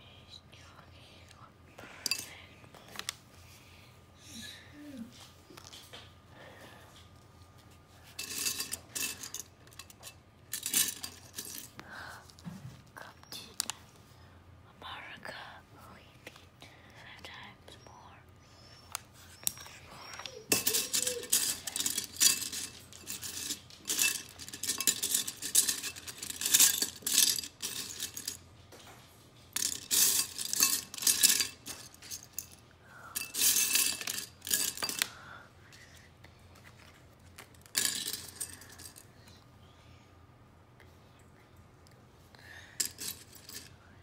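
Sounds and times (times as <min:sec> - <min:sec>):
plastic pieces clattering in ceramic bowl: 0:08.2 - 0:11.7, 0:19.5 - 0:28.4, 0:29.5 - 0:32.6, 0:33.2 - 0:35.1, 0:37.4 - 0:39.0.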